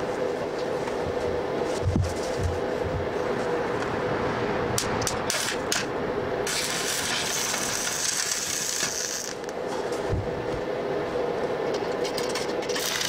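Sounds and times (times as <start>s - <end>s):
welding arc crackling: 5.0s - 9.6s, 12.6s - 13.0s.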